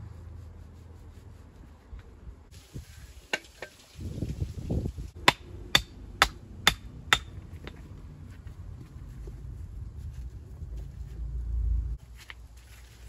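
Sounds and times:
hammer striking stone: 0:05.2 - 0:07.8.

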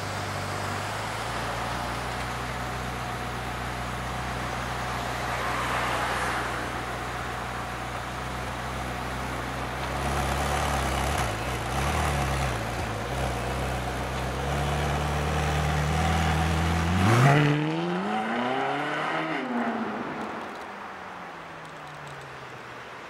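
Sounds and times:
car engine idling: 0:00.0 - 0:17.1
car accelerating away: 0:10.0 - 0:20.4.

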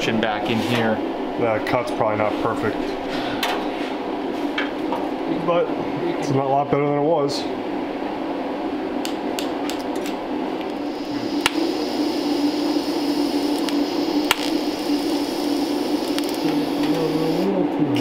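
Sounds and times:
welding arc hissing and buzzing: 0:10.6 - 0:18.0.

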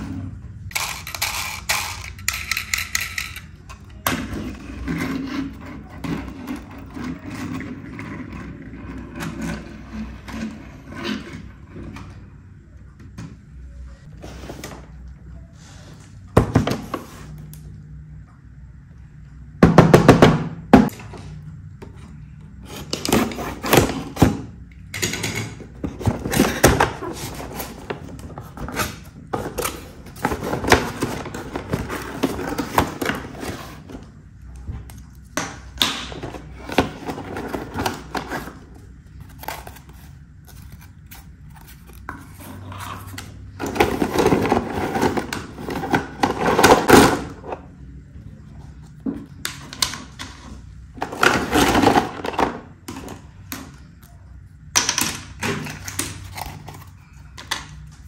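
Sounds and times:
plastic toy clicks and knocks: 0:00.7 - 0:03.6.

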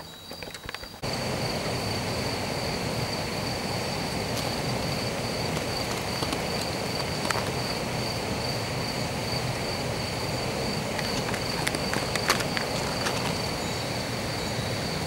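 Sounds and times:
cricket trilling: 0:00.0 - 0:15.0
background rush: 0:01.1 - 0:15.0.

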